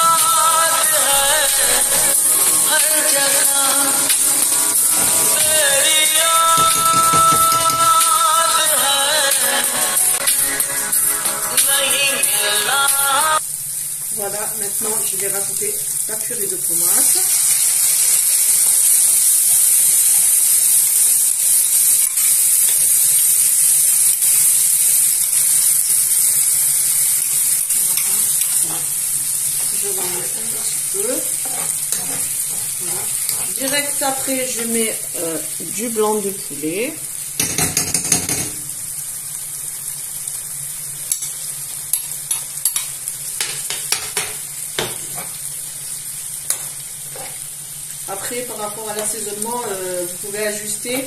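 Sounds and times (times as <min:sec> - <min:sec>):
food sizzling in a frying pan: 0:00.0 - 0:51.0
metal spoon clicking and scraping: 0:27.2 - 0:28.9, 0:31.4 - 0:33.7.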